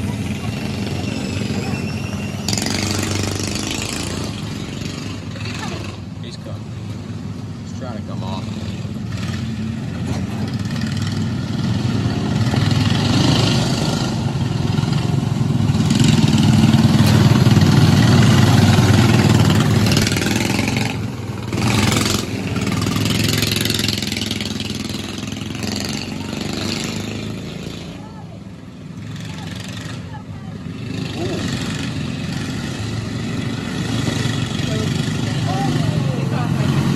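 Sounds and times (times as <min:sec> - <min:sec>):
race car engines passing: 0:00.0 - 0:36.9.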